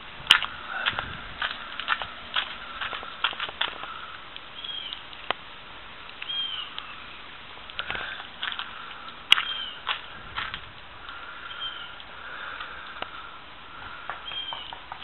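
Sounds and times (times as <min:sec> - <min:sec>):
short bird chirps: 0:04.6 - 0:05.0, 0:06.2 - 0:07.2, 0:09.4 - 0:09.8, 0:11.5 - 0:12.0
sharp clicks and ticks: 0:14.1 - 0:15.0.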